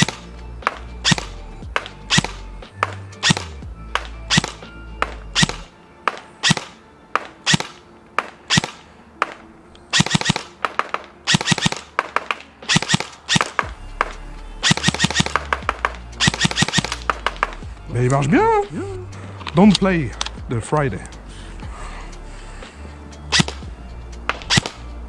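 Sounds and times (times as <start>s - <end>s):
airsoft gun firing: 0.0s - 17.6s, 23.3s - 23.6s, 24.3s - 24.8s.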